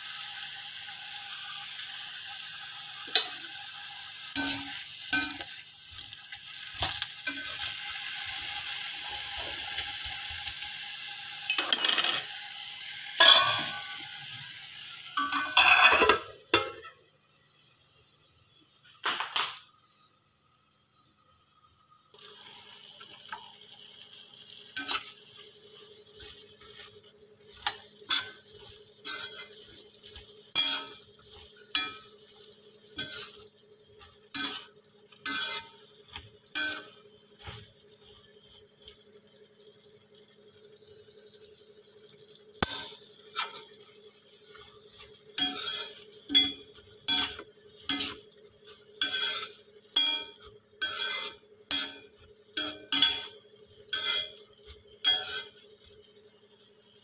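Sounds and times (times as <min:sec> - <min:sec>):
food sizzling in a pan: 0:00.0 - 0:57.0
metal skimmer scraping a pan: 0:03.0 - 0:03.4, 0:04.3 - 0:07.7, 0:11.5 - 0:12.4, 0:13.2 - 0:14.0, 0:15.2 - 0:16.9, 0:24.7 - 0:32.3, 0:32.9 - 0:38.2, 0:42.6 - 0:56.0.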